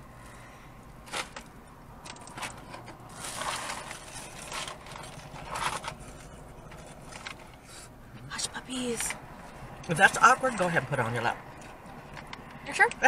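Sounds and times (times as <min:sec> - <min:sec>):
paper box rustling: 0:02.2 - 0:07.7.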